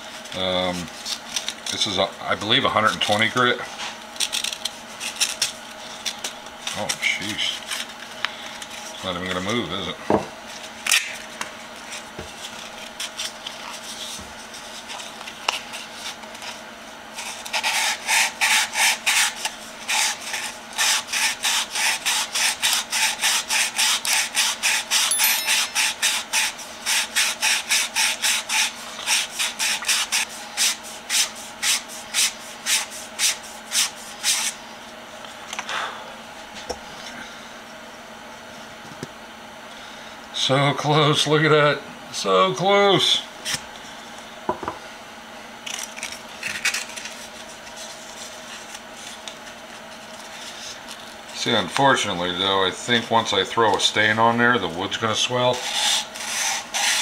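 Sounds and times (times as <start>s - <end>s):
sanding tape rubbing wood: 17.2s - 34.6s, 55.6s - 57.0s.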